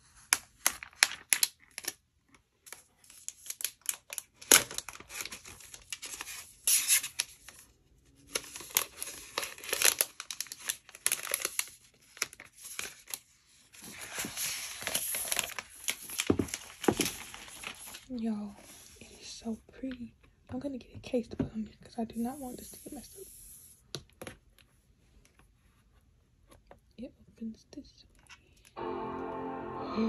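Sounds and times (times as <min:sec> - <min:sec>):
plastic wrap crinkling: 0:00.2 - 0:07.6, 0:08.2 - 0:18.8.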